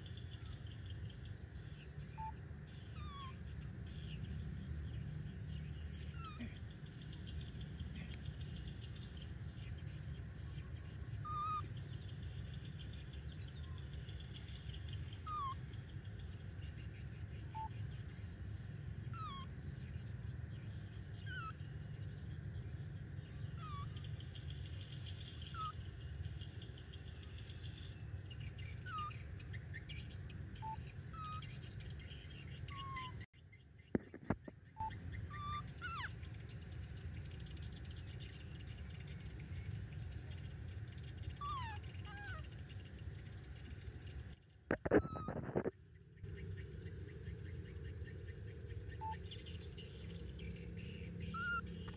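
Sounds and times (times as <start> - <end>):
low outdoor background: 0.0 - 51.9
whistled animal calls: 2.0 - 4.1, 5.9 - 6.8, 10.0 - 11.8, 15.0 - 15.7, 17.1 - 17.9, 19.0 - 19.6, 23.4 - 24.1, 25.3 - 25.9, 28.7 - 29.1, 30.6 - 31.4, 34.7 - 36.4, 41.2 - 42.6, 44.7 - 45.7, 49.0 - 49.7, 51.2 - 51.9.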